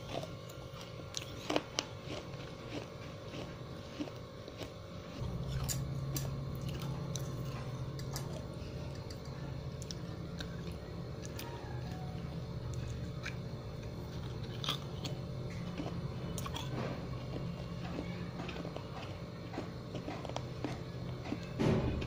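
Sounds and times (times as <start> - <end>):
chewing crunchy clay: 0.0 - 22.0
low hum: 5.0 - 22.0.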